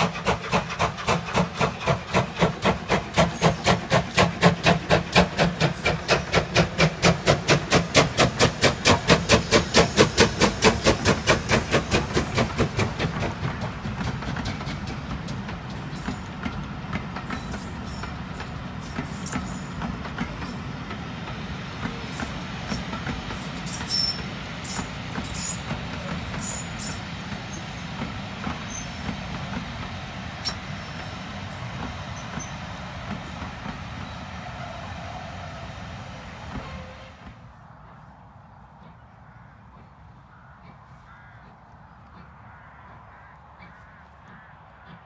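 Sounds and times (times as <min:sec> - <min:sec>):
steam locomotive beats: 0:00.0 - 0:38.1
train wheels rumbling: 0:00.0 - 0:43.1
wheel squeals: 0:17.2 - 0:20.8, 0:21.8 - 0:27.9, 0:28.5 - 0:29.2, 0:30.4 - 0:32.8.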